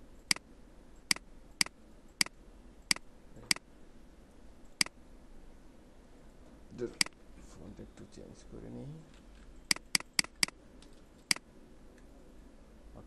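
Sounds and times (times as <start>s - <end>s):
computer mouse clicking: 1.1s - 3.6s, 9.1s - 11.4s.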